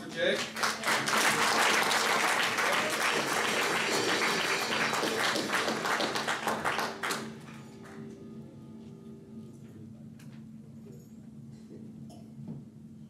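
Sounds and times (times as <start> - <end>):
congregation applauding: 0.0 - 8.2.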